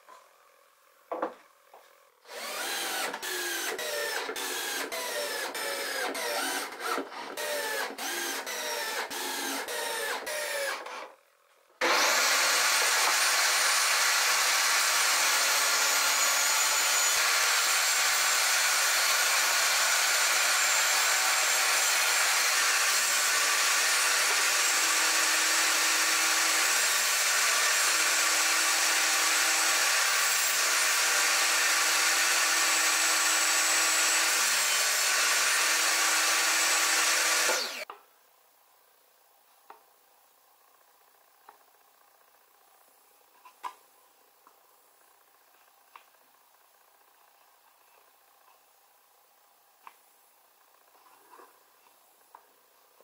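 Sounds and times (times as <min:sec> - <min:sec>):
table saw motor running: 0:02.3 - 0:10.8, 0:11.8 - 0:37.9
cordless drill driving screws: 0:02.3 - 0:11.1, 0:11.8 - 0:37.9.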